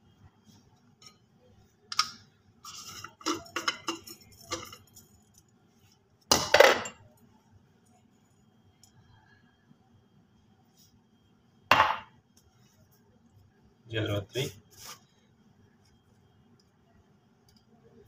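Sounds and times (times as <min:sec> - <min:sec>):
glass and plastic clinks: 0:02.7 - 0:05.2.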